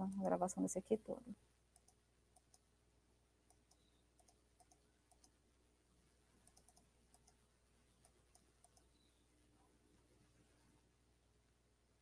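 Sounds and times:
low steady hum: 0.0s - 12.0s
computer mouse clicks: 1.7s - 2.7s, 3.5s - 5.4s, 6.4s - 9.2s.

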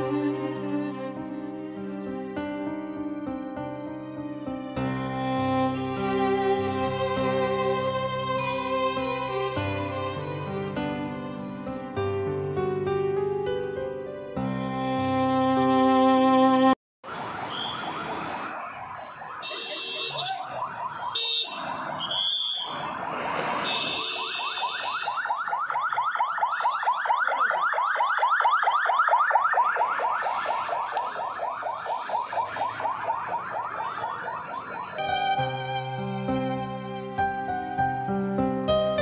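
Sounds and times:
music: 0.0s - 16.8s, 35.0s - 39.0s
ambulance siren yelping: 17.0s - 37.0s.

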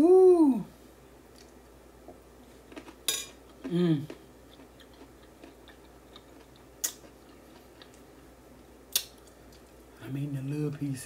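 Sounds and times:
person humming mmm: 0.0s - 0.7s, 3.6s - 4.2s
soft chewing: 1.3s - 9.9s.

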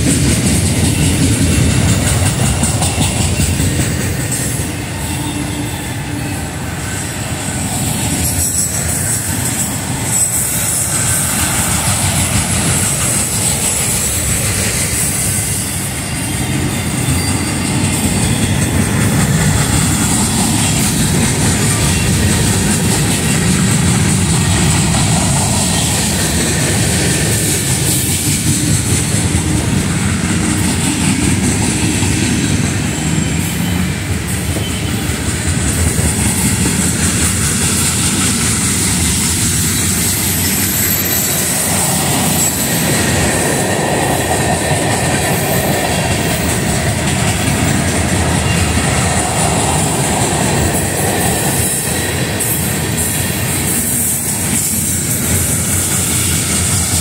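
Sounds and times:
clickety-clack over rail joints: 0.0s - 57.0s
steel wheels rumbling on rail: 0.0s - 57.0s
high-pitched wheel squeal: 4.5s - 11.7s, 13.2s - 20.9s.

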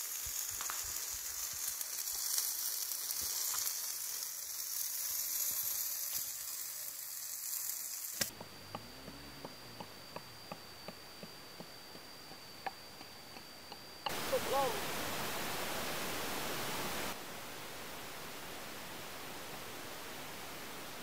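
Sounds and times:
fish sizzling over embers: 0.0s - 8.4s
thin steady high tone: 3.9s - 21.0s
pestle knocking in clay mortar: 8.3s - 13.8s.

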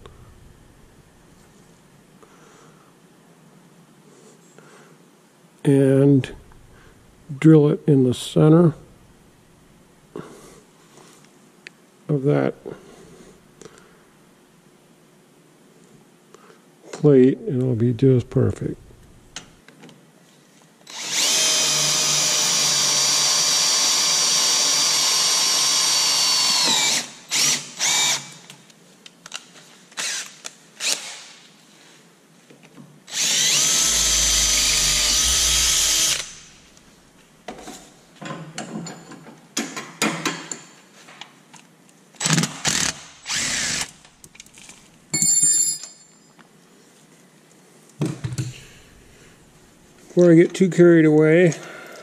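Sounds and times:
cordless drill boring steel: 20.9s - 28.4s, 30.0s - 31.1s, 33.1s - 36.8s, 42.2s - 44.0s.

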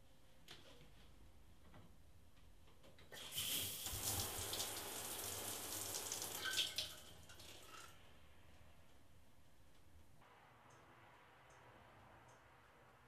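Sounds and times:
shower water spraying: 3.2s - 7.0s.

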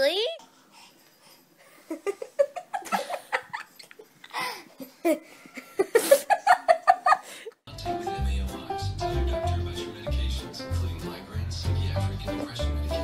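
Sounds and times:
person giggling: 1.9s - 7.6s
breathy gasp: 4.3s - 5.6s.

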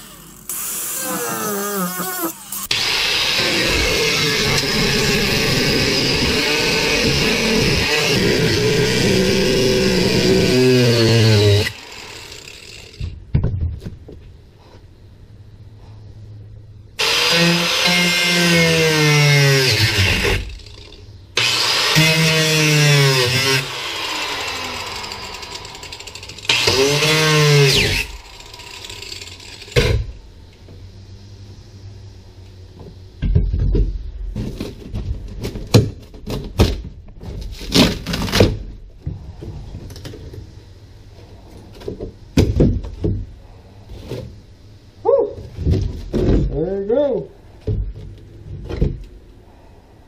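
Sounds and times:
angle grinder cutting: 0.0s - 13.0s, 17.0s - 30.1s.

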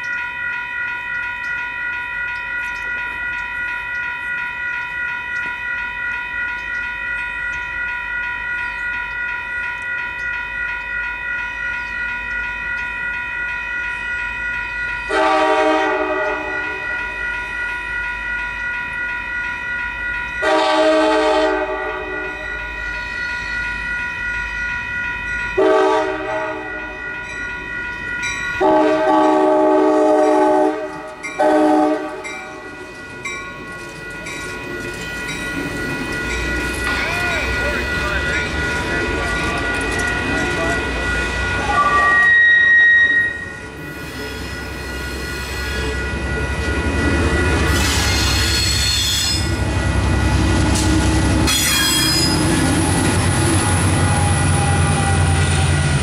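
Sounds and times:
crossing warning bells: 0.0s - 56.0s
train horn blasts: 15.1s - 16.8s, 20.4s - 22.4s, 25.6s - 26.8s, 28.6s - 32.3s, 41.7s - 43.5s.

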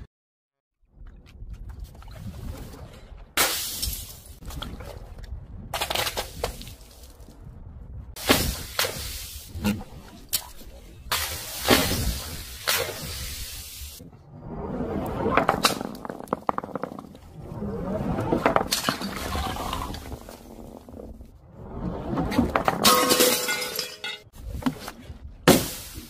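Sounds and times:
ball rolling down wooden ramp: 14.3s - 23.0s.

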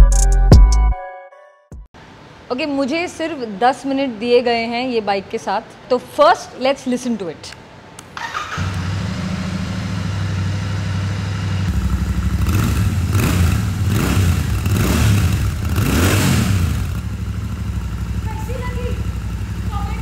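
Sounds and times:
motorcycle engine idling and revving: 8.2s - 20.0s.

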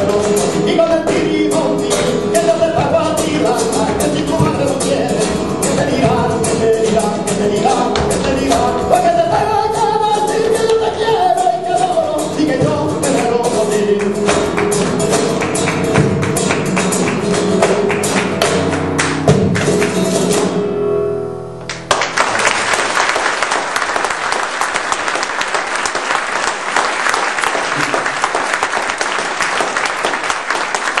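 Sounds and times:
person singing: 0.0s - 15.3s
sharp rhythmic percussive strikes: 0.0s - 20.6s
guitar: 0.0s - 22.7s
audience applauding: 14.4s - 20.1s, 21.7s - 31.0s.

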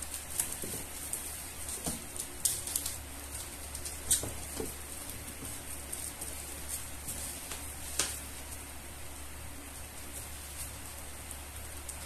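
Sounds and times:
plastic wrapping crinkling: 0.0s - 8.6s.

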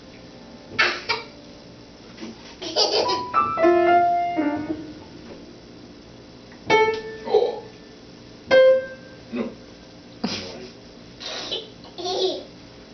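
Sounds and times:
piano notes ringing: 2.9s - 5.8s, 6.5s - 9.8s.

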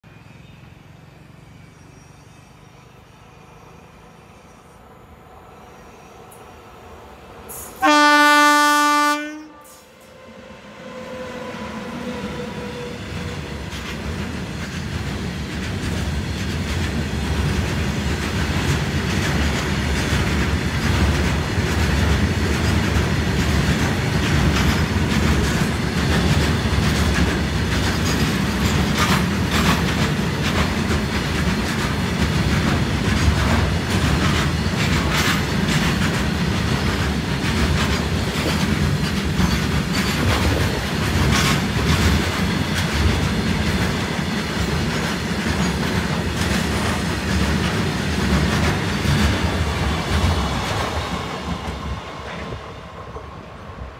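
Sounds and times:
freight train rumbling past: 0.2s - 53.9s
locomotive horn blast: 7.8s - 13.4s.

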